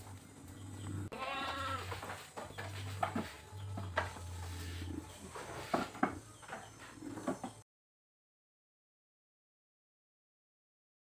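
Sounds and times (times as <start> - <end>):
low hum: 0.0 - 1.1
knocks and scuffs of movement: 0.0 - 7.6
goat bleating: 0.8 - 2.2.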